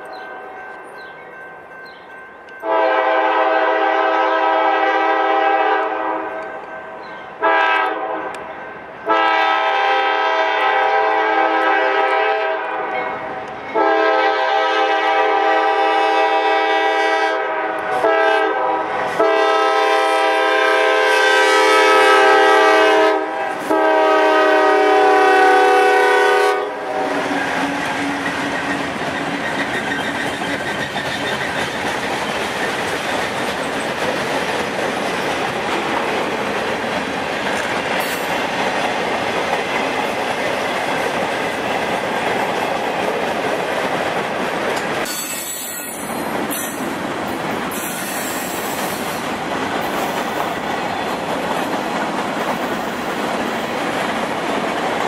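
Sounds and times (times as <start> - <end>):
freight cars wheels on rail: 0.0 - 55.0
locomotive air horn blasts: 2.6 - 6.6, 7.4 - 8.4, 9.0 - 28.2.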